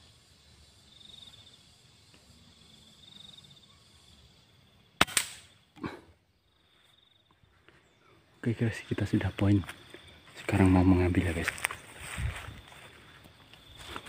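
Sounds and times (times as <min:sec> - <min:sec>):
insects trilling: 0:00.0 - 0:14.0
air rifle shot crack: 0:05.0 - 0:05.6.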